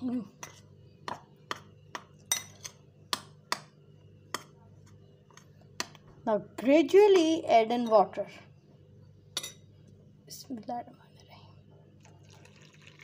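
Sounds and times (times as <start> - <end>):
spoon clinking against glass bowl: 2.2 - 2.8.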